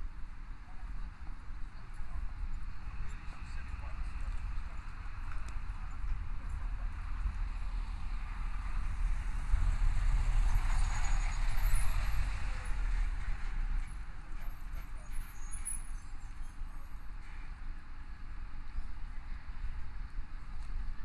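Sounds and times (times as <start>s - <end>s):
thin high-pitched squeals: 14.4s - 17.4s.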